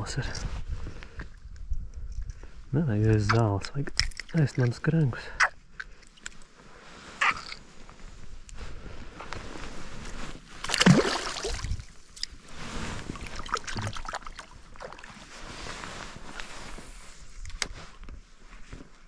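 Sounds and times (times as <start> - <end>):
soft water sounds: 0.0 - 18.7
fish splashing in water: 10.6 - 11.9.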